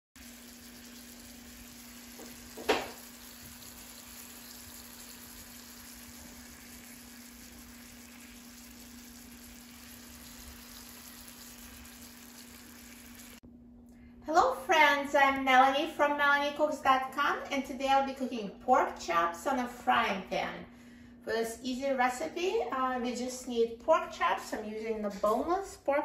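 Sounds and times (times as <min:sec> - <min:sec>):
meat sizzling in a frying pan: 0:00.2 - 0:13.4.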